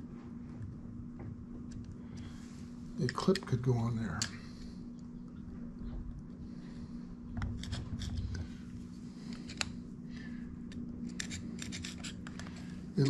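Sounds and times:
low hum: 0.0s - 13.0s
screwdriver metallic clicks and scrapes: 11.0s - 13.0s.

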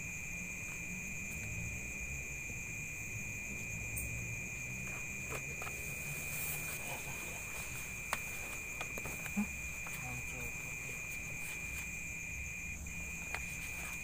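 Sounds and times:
night insects droning: 0.0s - 14.0s.

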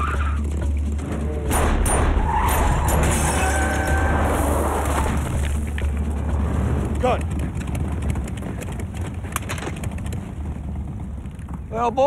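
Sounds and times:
truck and motorcycle engines: 0.0s - 12.0s
tires skidding: 2.0s - 10.0s.

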